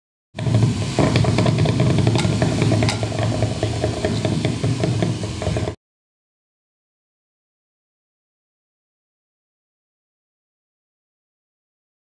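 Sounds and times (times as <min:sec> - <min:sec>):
dense crackle: 0:00.4 - 0:05.8
steady low drone: 0:00.4 - 0:05.8.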